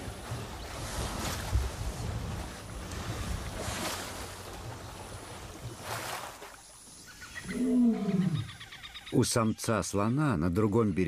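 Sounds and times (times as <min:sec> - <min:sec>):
elephants splashing in water: 0:00.0 - 0:06.9
elephant roaring: 0:07.4 - 0:08.5.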